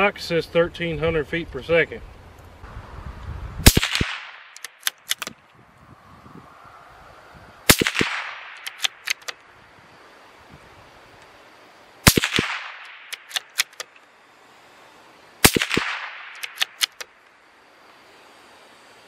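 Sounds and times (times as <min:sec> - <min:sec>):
rifle shots with echo: 0:03.6 - 0:05.3, 0:07.7 - 0:09.3, 0:12.0 - 0:13.8, 0:15.4 - 0:17.0
rifle bolt clicks: 0:03.8 - 0:05.4, 0:07.8 - 0:09.4, 0:12.2 - 0:14.0, 0:15.7 - 0:17.1.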